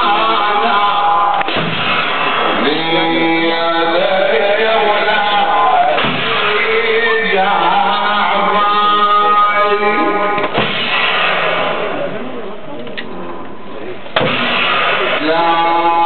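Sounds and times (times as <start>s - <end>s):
voices singing mourning chant: 0.0s - 1.5s, 2.5s - 10.4s.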